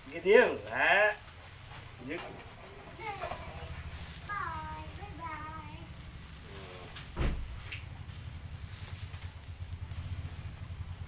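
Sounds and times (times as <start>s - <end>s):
steady low hum: 0.0s - 11.0s
sharp thump: 7.1s - 7.7s.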